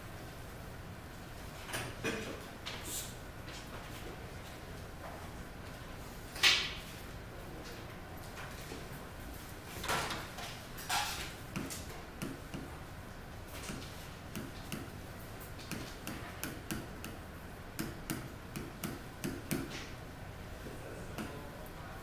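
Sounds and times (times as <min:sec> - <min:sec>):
pen tapping on touchscreen: 0:11.5 - 0:12.7, 0:13.6 - 0:14.9, 0:15.6 - 0:17.2, 0:17.8 - 0:19.9.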